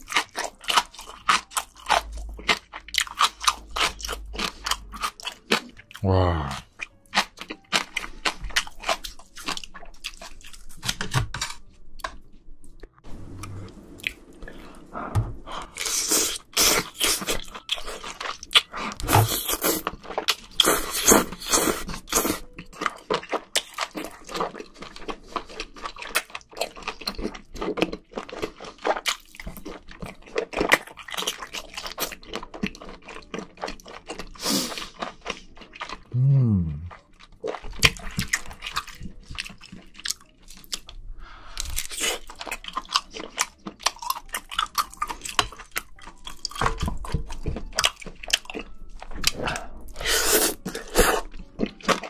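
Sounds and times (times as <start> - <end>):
wet chewing and mouth smacks: 36.9 - 52.0
slurping: 49.3 - 51.3.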